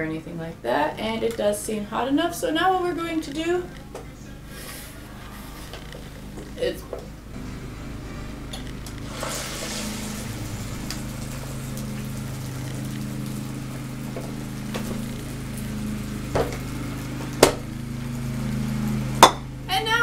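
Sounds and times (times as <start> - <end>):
lawn mower engine droning: 4.4 - 20.0
eggs sizzling on waffle iron: 8.9 - 19.8.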